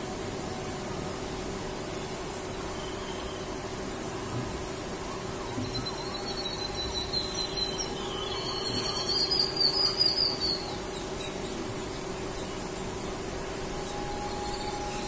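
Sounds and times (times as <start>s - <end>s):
birds calling in squeaky notes: 5.6s - 11.6s.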